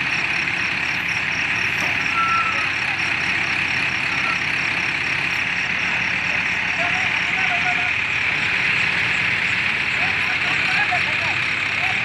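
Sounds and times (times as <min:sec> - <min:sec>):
diesel crane engines running: 0:00.0 - 0:12.0
high-pitched warning beeper: 0:01.0 - 0:02.8.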